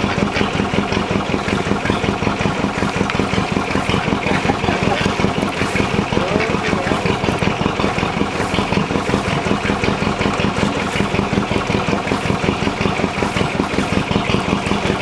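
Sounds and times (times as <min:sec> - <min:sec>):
boat engine chugging: 0:00.0 - 0:15.0.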